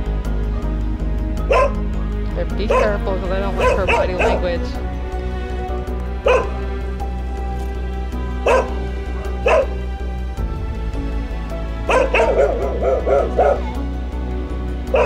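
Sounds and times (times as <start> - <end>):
background music: 0.0 - 15.0
dog barking: 1.4 - 1.8, 2.6 - 4.8, 6.2 - 6.7, 8.4 - 9.8, 11.8 - 13.9.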